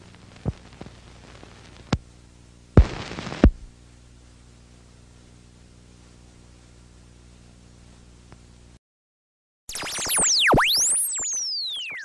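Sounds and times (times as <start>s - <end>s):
low steady hum: 0.0s - 8.8s
static-like hiss: 0.0s - 8.8s.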